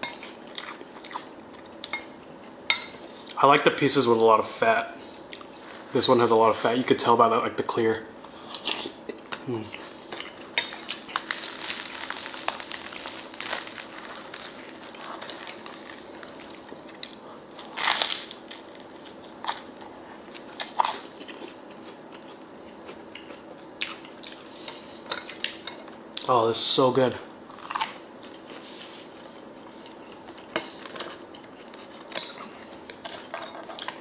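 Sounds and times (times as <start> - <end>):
crusty bread crunching: 9.4 - 22.0.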